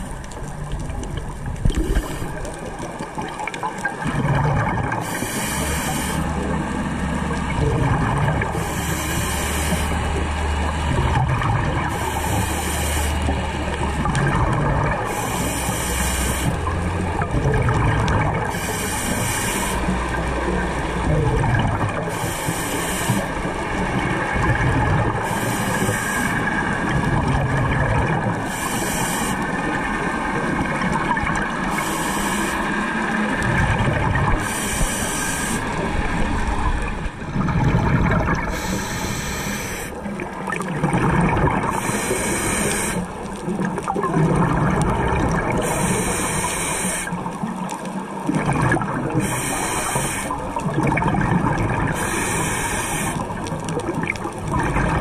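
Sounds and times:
exhaled bubbles rushing: 0.0 - 55.0
regulator inhale hiss: 5.0 - 6.6, 8.5 - 10.4, 11.9 - 13.3, 15.0 - 16.7, 18.5 - 20.1, 22.1 - 23.5, 25.2 - 26.9, 28.4 - 29.7, 31.6 - 33.4, 34.3 - 36.1, 38.4 - 40.1, 41.7 - 43.4, 45.6 - 47.4, 49.2 - 50.5, 51.9 - 53.6.

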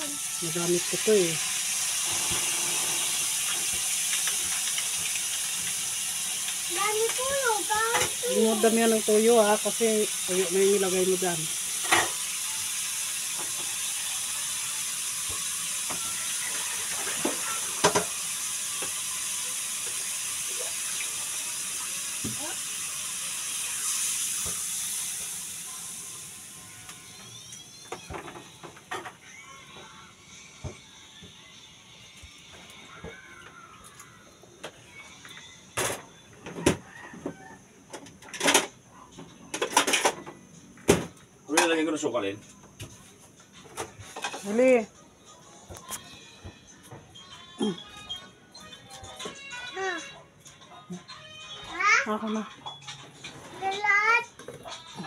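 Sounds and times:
steady hiss: 0.0 - 27.6.

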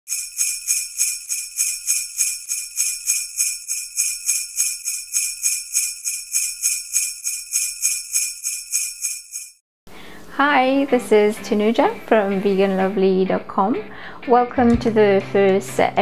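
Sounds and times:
sleigh bells jingling: 0.1 - 9.6.

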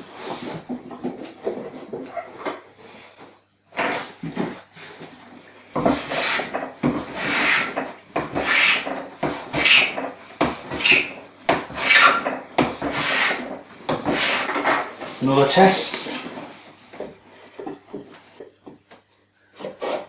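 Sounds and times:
plane rasping on wood: 5.8 - 14.7, 19.6 - 20.0.

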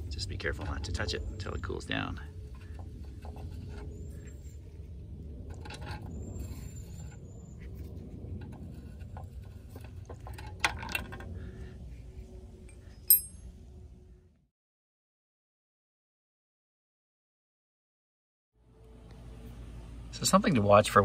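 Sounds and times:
low rumble: 0.0 - 14.5
ringing metallic clink: 13.0 - 13.5.

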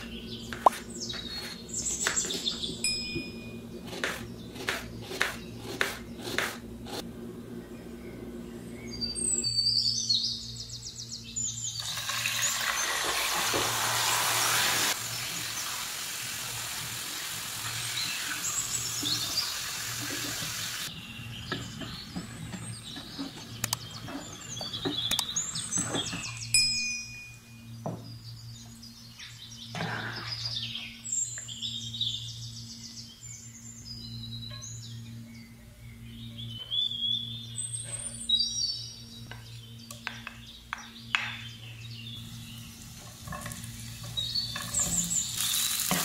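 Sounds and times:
bird chirping: 0.0 - 6.4, 7.4 - 13.0, 20.9 - 45.8
steady low hum: 0.0 - 11.8, 20.9 - 45.8
liver frying sizzle: 11.8 - 20.9, 42.2 - 46.0.

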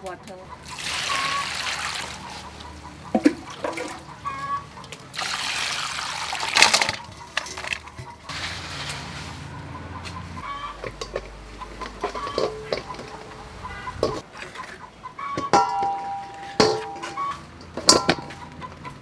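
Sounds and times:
water pouring into metal bowl: 0.6 - 2.2, 5.1 - 7.0
hand stirring wet pieces: 3.3 - 9.2.

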